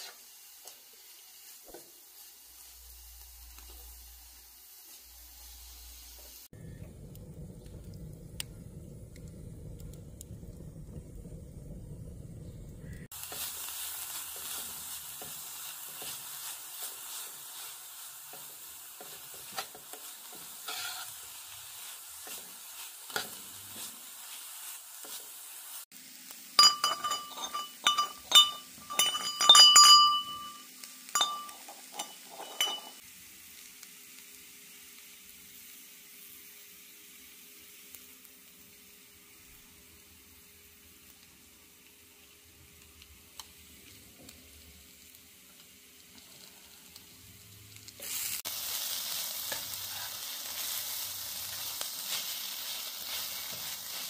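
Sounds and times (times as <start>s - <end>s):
greens sizzling in a pot: 0.0s - 54.0s
wood fire rumbling: 6.6s - 13.2s
metal tongs clinking against pot: 26.6s - 33.0s.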